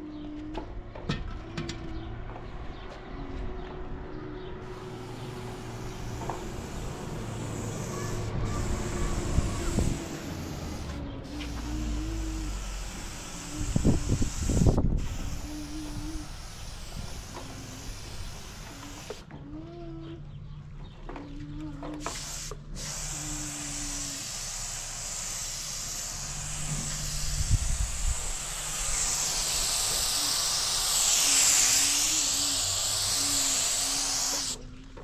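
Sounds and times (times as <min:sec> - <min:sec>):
paint spray gun hissing: 0:04.6 - 0:19.3, 0:22.0 - 0:34.7.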